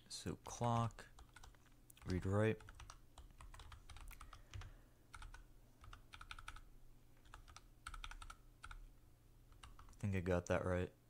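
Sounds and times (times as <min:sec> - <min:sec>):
typing on computer keyboard: 0:01.1 - 0:08.9, 0:09.5 - 0:10.0.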